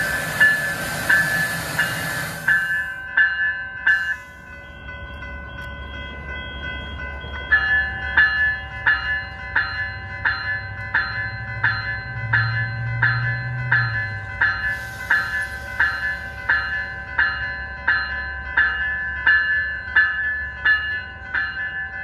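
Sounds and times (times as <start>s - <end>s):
loud rushing hiss: 0.0s - 3.0s, 14.6s - 16.6s
crossing warning bell ringing: 0.0s - 22.0s
train rumbling: 0.0s - 22.0s.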